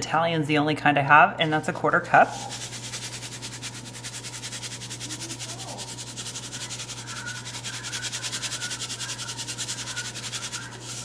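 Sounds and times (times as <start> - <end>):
breadcrumbs pattering: 2.3 - 11.0.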